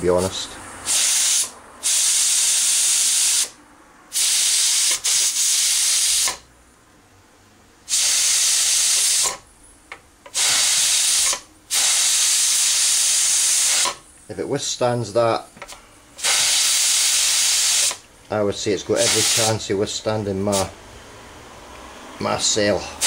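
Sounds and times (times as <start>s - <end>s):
steam hissing from pressure cooker: 0.8s - 6.4s, 7.9s - 9.4s, 10.3s - 14.0s, 16.2s - 18.0s, 19.0s - 19.7s.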